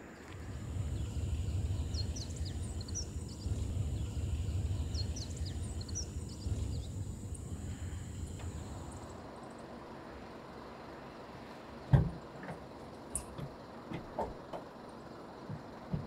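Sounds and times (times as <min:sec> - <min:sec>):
steady low rumble: 0:00.0 - 0:09.3
small birds chirping: 0:00.0 - 0:09.8.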